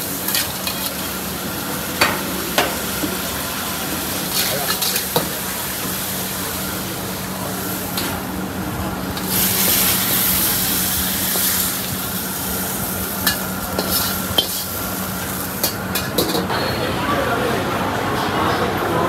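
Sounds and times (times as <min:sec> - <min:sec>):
food sizzling in a wok: 0:00.0 - 0:16.5
gas burner hum: 0:00.0 - 0:17.9
metal ladle scraping wok: 0:04.2 - 0:05.4, 0:13.2 - 0:16.6.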